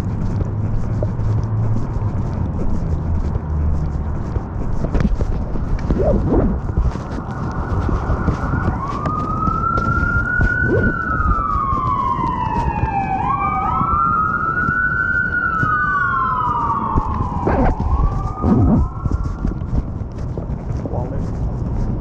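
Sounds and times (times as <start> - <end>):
steady low rumble: 0.0 - 22.0
siren wailing: 7.3 - 19.6.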